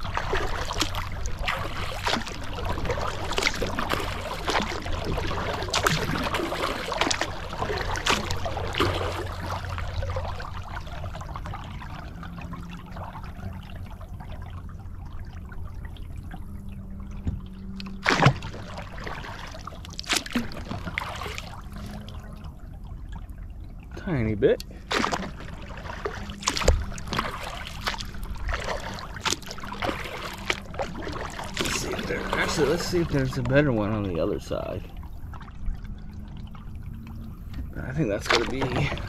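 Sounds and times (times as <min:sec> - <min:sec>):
water dripping off paddle: 0:00.0 - 0:12.1, 0:24.5 - 0:34.2
kayak paddle strokes: 0:00.0 - 0:14.4, 0:17.2 - 0:22.4, 0:24.5 - 0:35.5, 0:37.4 - 0:39.0.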